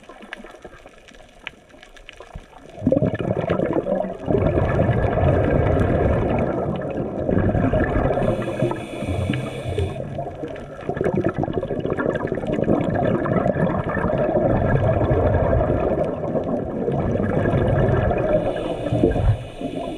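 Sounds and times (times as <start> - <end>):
muffled underwater gurgle: 0.0 - 19.9
brief hiss: 8.4 - 10.0.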